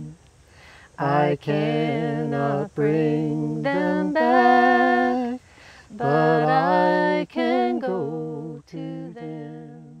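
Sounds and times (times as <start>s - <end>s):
person singing gospel unaccompanied: 0.0s - 10.0s
singer breath: 0.4s - 1.0s, 5.4s - 5.9s.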